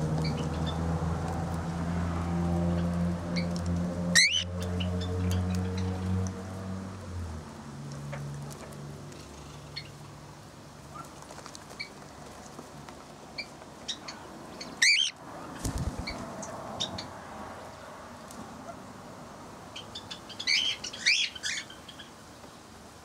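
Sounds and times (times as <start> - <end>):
birds chirping: 0.0 - 0.9, 2.6 - 6.3, 13.4 - 17.9
loud wavering bird call: 4.2 - 5.9, 14.8 - 15.2.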